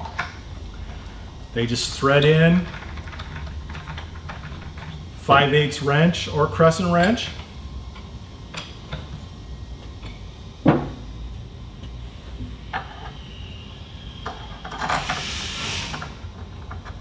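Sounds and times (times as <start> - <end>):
rushing hiss: 14.7 - 16.3.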